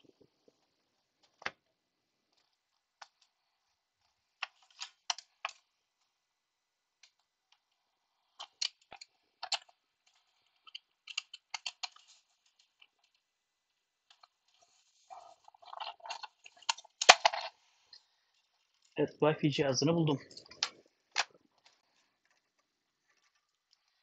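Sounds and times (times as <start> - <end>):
small objects being rummaged through: 14.1 - 17.7.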